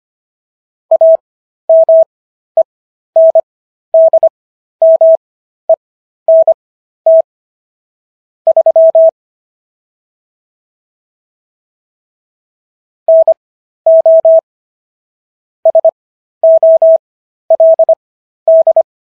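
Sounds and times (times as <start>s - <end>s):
morse code beeps: 0.9s - 2.1s, 3.2s - 3.4s, 4.0s - 5.2s, 6.3s - 7.3s, 8.5s - 9.1s, 13.1s - 14.4s, 15.7s - 18.9s.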